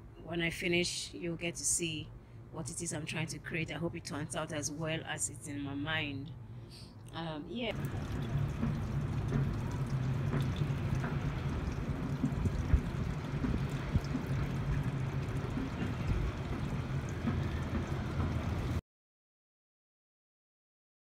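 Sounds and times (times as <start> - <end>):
faint hum: 0.0 - 18.8
low rumble: 7.7 - 18.8
water-like wash: 7.7 - 18.8.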